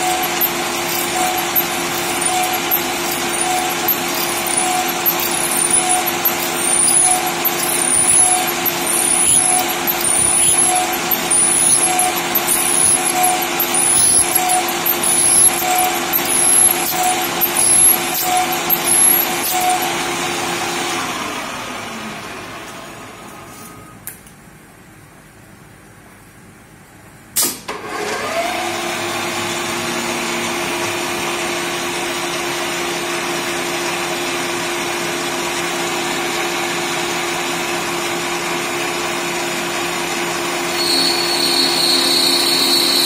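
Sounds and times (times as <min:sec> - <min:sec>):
spindle hum: 0:00.0 - 0:19.9, 0:40.7 - 0:43.0
lathe cutting noise: 0:00.0 - 0:22.5, 0:28.0 - 0:43.0
single click: 0:27.4 - 0:27.7.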